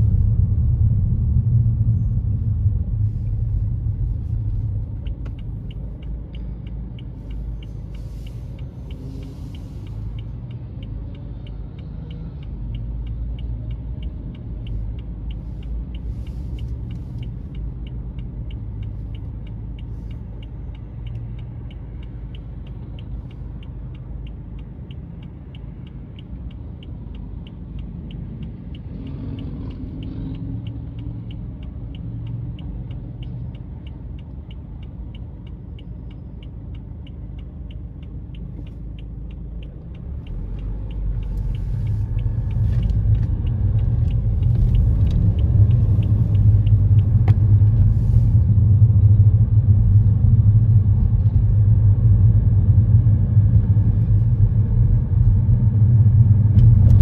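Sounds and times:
low engine rumble: 0.0s - 28.8s, 29.4s - 57.0s
road noise: 0.0s - 57.0s
turn signal ticking: 0.0s - 57.0s.

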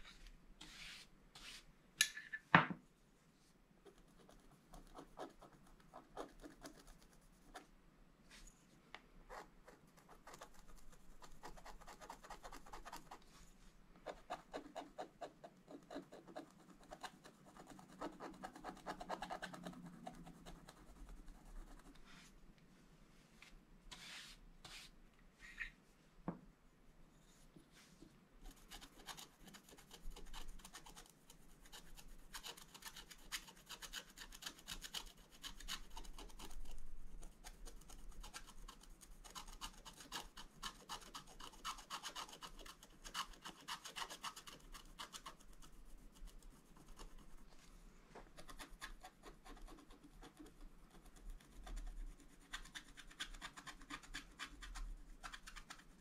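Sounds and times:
stylus scratching coated paper: 3.9s - 7.7s, 9.3s - 13.4s, 14.1s - 22.3s, 28.4s - 56.0s.

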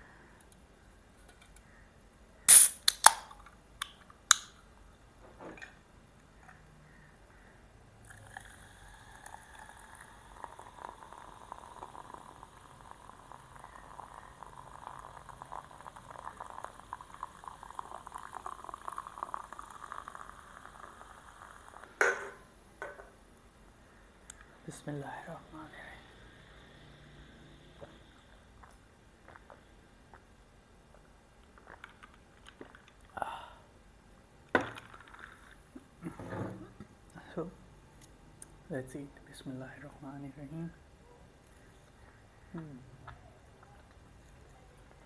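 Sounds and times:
can tab popping open with hiss: 2.5s - 4.6s
cola fizzing as poured into glass: 8.0s - 22.0s.

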